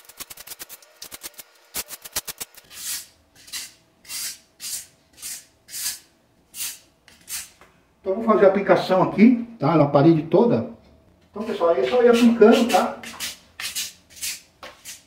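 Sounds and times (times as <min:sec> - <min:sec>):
putty knife scraping tiles: 0:01.9 - 0:07.6, 0:12.2 - 0:15.0.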